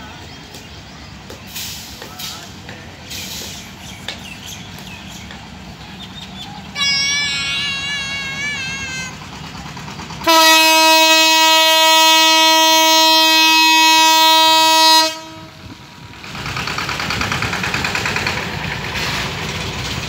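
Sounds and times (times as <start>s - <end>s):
approaching train rumble: 0.0s - 20.0s
locomotive horn blast: 10.2s - 15.7s.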